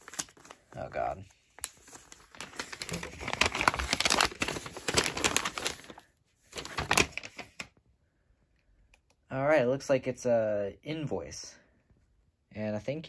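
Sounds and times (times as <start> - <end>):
paper crinkling and rustling: 0.0 - 7.7.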